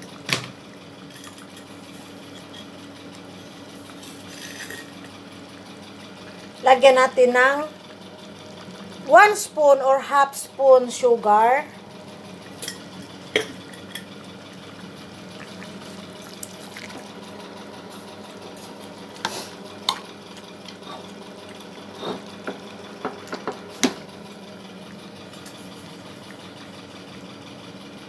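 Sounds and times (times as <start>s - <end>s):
steady low hum: 0.0s - 28.0s
food simmering in a pan: 12.2s - 17.8s.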